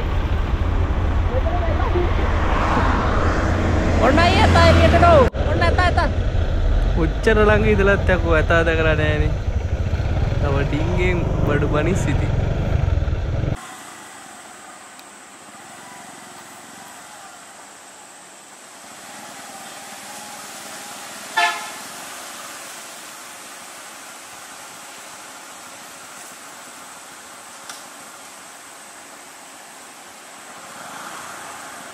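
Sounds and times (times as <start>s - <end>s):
traffic hum: 0.0s - 31.9s
vehicle horn toot: 21.3s - 22.0s.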